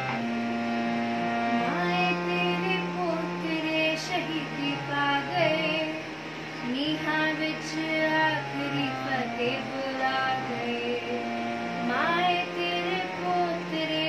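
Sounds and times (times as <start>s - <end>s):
held low drone notes: 0.0s - 14.0s
girl singing: 1.7s - 6.0s, 6.6s - 11.2s, 11.8s - 14.0s.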